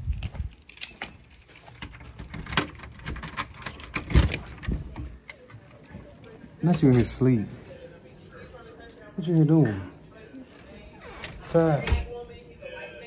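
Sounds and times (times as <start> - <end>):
keys jangling: 0.0 - 7.2
door unlocking and opening: 0.1 - 7.2.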